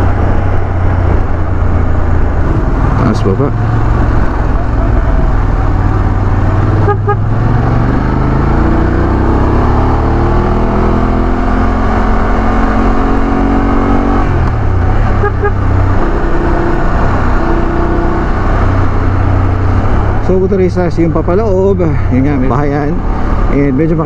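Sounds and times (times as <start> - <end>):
motorcycle engine accelerating: 0.0 - 21.8
low wind rumble: 0.0 - 24.0.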